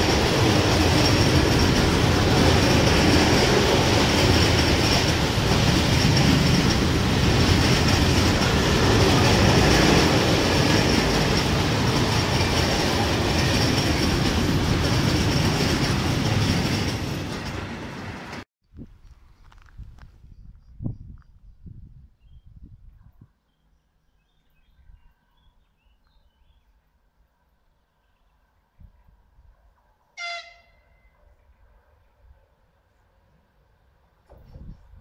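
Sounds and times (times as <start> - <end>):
freight train rumbling past: 0.0 - 18.4.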